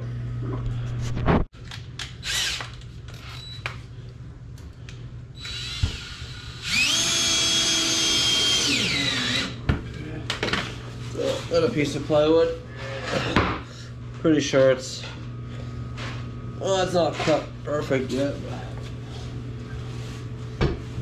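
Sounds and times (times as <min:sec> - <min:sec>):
cordless drill whining: 0:02.2 - 0:03.6, 0:05.4 - 0:09.6.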